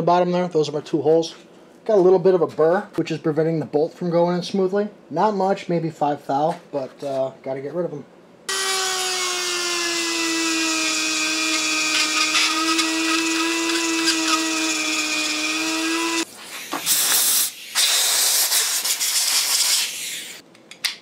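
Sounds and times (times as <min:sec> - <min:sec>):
high-speed rotary tool grinding: 0:08.5 - 0:16.3
rushing hiss bursts: 0:16.4 - 0:20.4.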